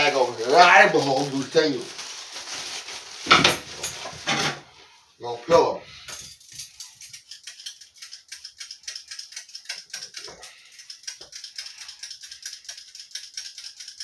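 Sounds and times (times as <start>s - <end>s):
blade scraping potato skin: 6.4s - 14.0s.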